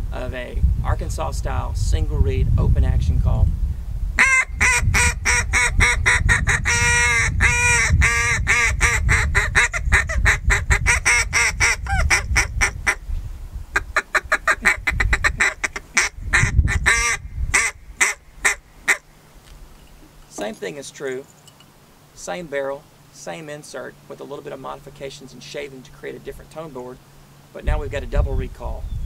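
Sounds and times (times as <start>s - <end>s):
duck call quacks: 4.2s - 13.0s, 13.8s - 19.0s.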